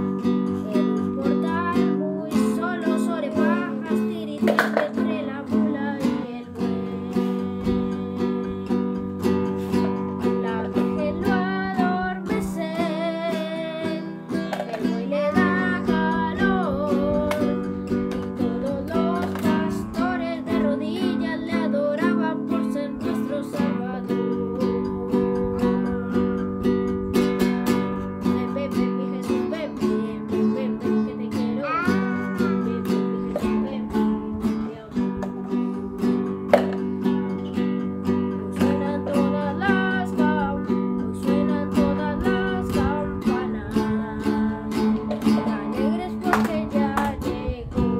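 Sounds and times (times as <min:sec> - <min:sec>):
child singing: 0:00.0 - 0:26.5, 0:27.1 - 0:37.1, 0:38.3 - 0:47.9
acoustic guitar strumming: 0:00.0 - 0:47.9.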